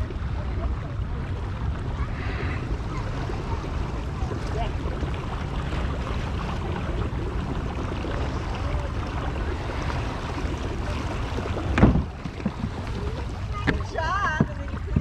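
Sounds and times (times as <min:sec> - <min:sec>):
water washing along hull: 0:00.0 - 0:15.0
wind on microphone: 0:00.0 - 0:15.0
loud thump: 0:11.8 - 0:12.6.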